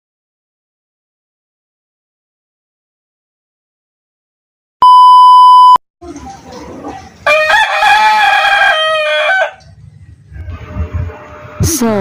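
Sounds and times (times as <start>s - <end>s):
loud flat beep tone: 4.8s - 5.8s
rooster crowing: 7.2s - 9.6s.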